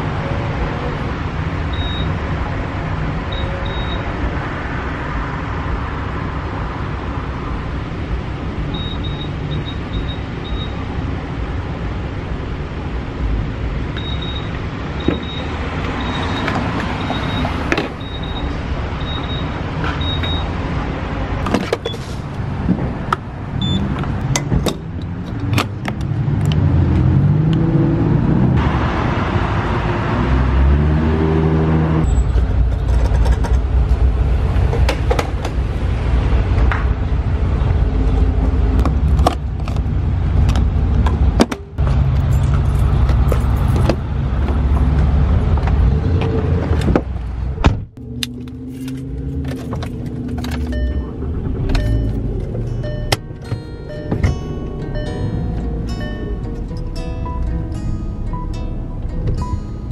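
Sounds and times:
vehicle engine pulling away: 25.0s - 32.9s, 48.0s - 59.9s
short electronic beep: 50.7s - 51.2s, 51.8s - 52.2s, 52.8s - 53.2s, 53.8s - 56.4s.

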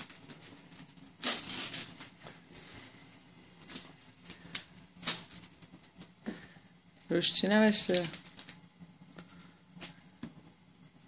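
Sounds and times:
wrapping paper crinkling: 0.0s - 3.0s, 3.6s - 6.1s, 7.1s - 10.0s.

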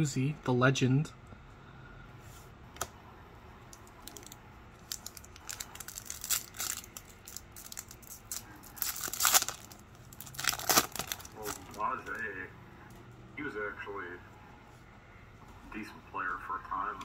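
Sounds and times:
foil wrapper crinkling and tearing: 3.8s - 12.2s.

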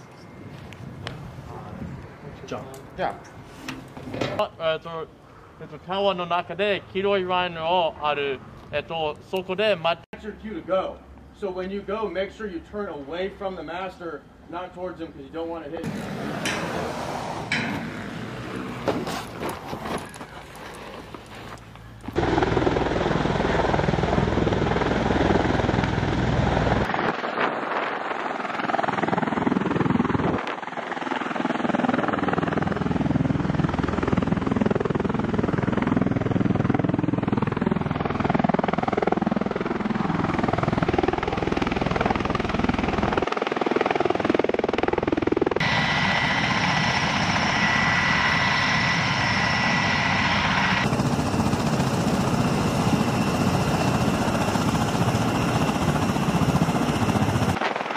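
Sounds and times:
aircraft rotor rushing noise: 15.8s - 21.6s, 36.7s - 57.9s
high engine whine: 15.8s - 26.9s, 45.6s - 57.6s.

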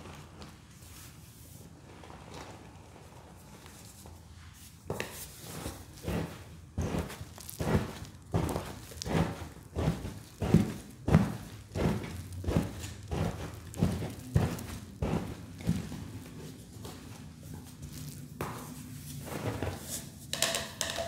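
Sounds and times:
cups thudding into powder: 19.6s - 21.0s.

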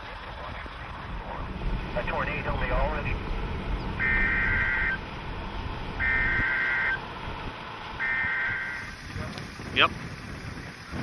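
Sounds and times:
vehicle and wind rumble: 0.0s - 11.0s
buzzy data bursts: 1.7s - 7.0s, 8.0s - 9.0s.

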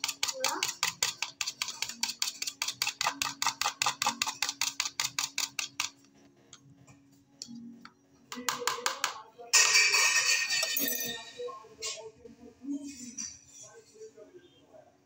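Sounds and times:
utensil clicking against plastic bowl: 0.0s - 6.0s.

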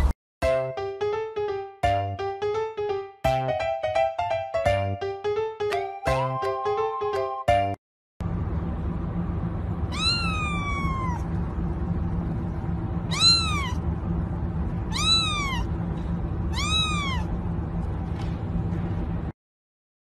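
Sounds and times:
kitten meowing: 9.9s - 11.3s, 13.1s - 13.8s, 14.9s - 15.7s, 16.5s - 17.4s.

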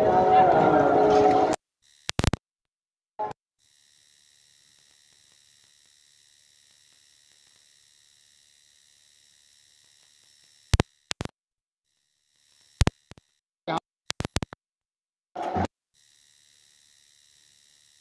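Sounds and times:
sharp clicks: 2.0s - 2.4s, 9.7s - 11.4s, 12.5s - 13.4s, 14.1s - 14.6s.

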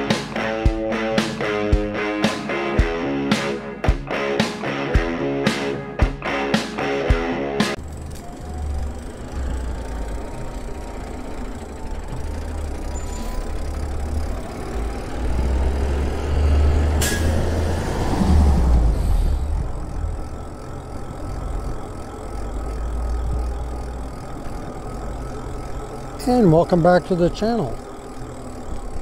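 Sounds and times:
truck passing: 0.0s - 29.0s
electric motor whine: 7.8s - 29.0s.

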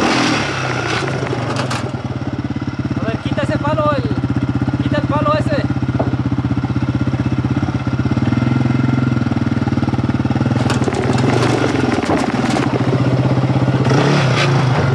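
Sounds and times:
quad engine idling: 0.0s - 14.9s
clicks and rattles: 1.0s - 2.0s, 10.5s - 12.9s.

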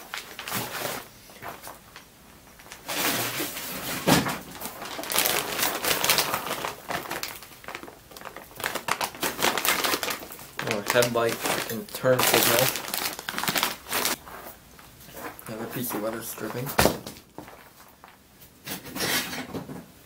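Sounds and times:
plastic bag crinkling: 2.6s - 14.5s.

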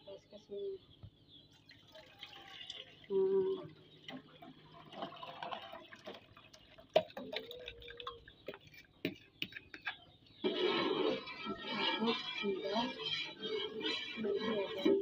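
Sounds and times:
liquid pouring into saucepan: 1.6s - 3.1s, 4.1s - 8.2s
metal spoon scraping bowl: 7.2s - 15.0s.

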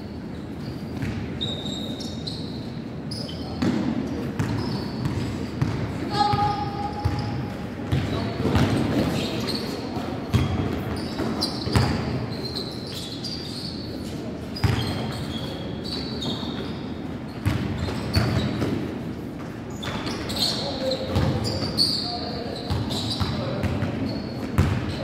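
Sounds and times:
sneaker squeaks: 0.0s - 25.0s
basketball bouncing on gym floor: 3.6s - 9.3s, 10.3s - 12.2s, 14.6s - 15.1s, 17.4s - 18.8s, 21.1s - 21.6s, 22.7s - 25.0s.

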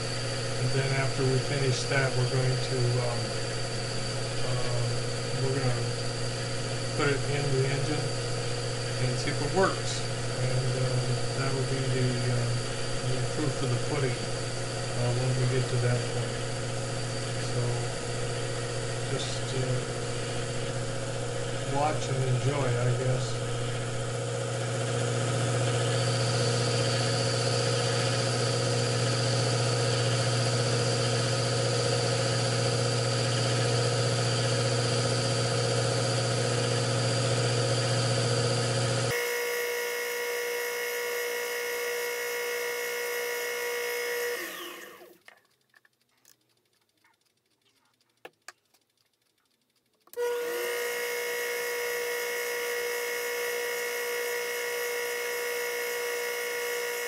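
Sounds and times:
lathe motor running: 0.0s - 45.6s, 50.1s - 57.0s
faint clicks: 45.0s - 50.2s.

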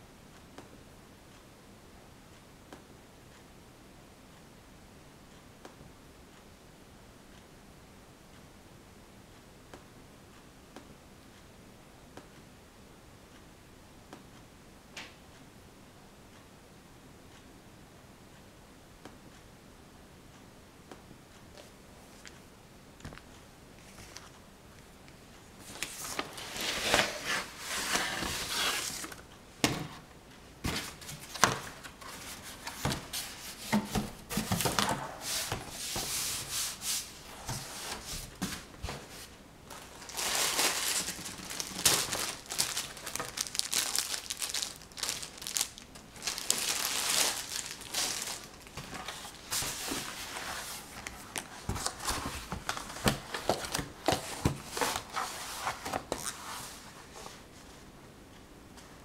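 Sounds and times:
crinkly material rustling: 25.6s - 29.2s, 30.6s - 57.5s.

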